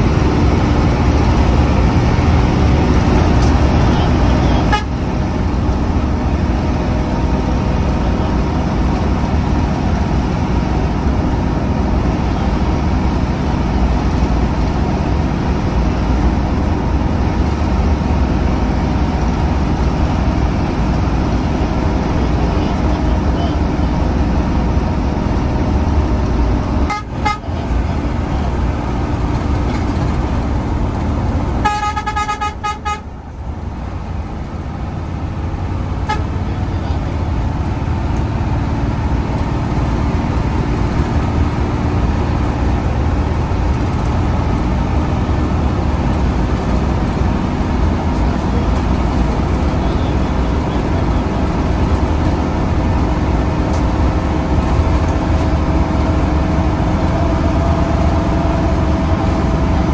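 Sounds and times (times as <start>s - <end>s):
bus engine and road drone: 0.0s - 59.9s
horn tooting: 3.4s - 5.2s, 26.8s - 27.8s, 31.6s - 33.2s, 36.0s - 36.7s.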